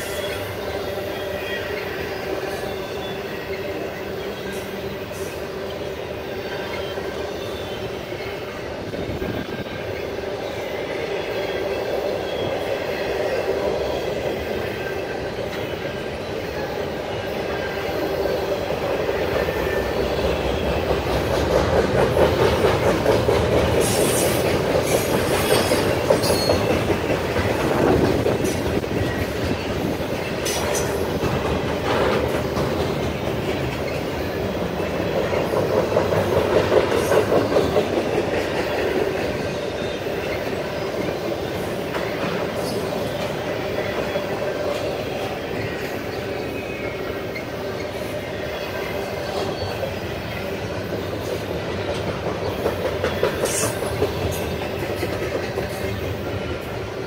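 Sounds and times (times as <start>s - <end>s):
train wheels rumbling on rail: 0.0s - 57.0s
wheel squeals: 23.8s - 31.2s.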